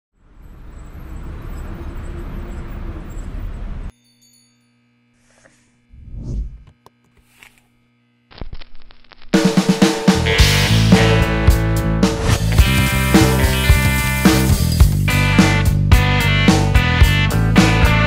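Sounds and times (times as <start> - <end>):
traffic rumble: 0.2 - 3.9.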